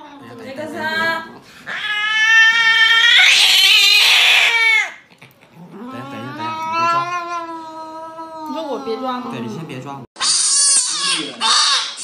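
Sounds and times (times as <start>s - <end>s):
cat yowling: 1.7s - 5.0s, 5.7s - 9.4s, 10.2s - 12.0s.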